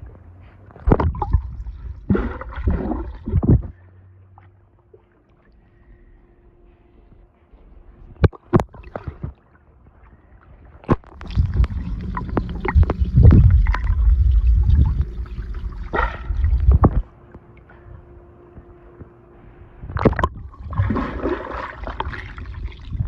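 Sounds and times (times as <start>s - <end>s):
muffled underwater rumble: 0.0s - 23.0s
water splashes and knocks: 0.8s - 3.7s, 8.2s - 9.4s, 10.8s - 17.0s, 20.0s - 23.0s.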